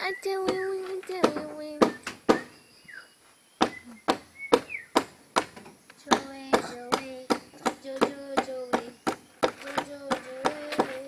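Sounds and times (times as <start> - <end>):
sharp taps and knocks: 3.6 - 11.0
person singing drawn-out notes: 6.0 - 11.0.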